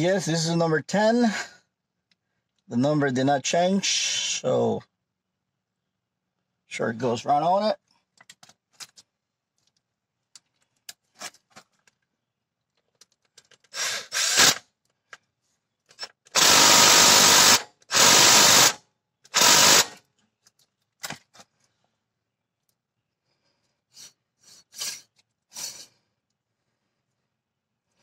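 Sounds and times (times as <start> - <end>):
power tool bursts: 13.7 - 14.6, 16.3 - 20.0.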